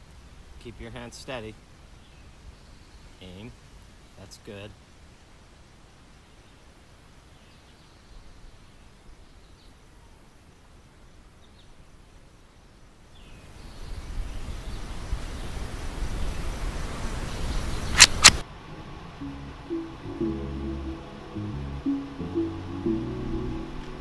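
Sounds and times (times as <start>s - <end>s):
rifle shots: 17.9s - 18.4s.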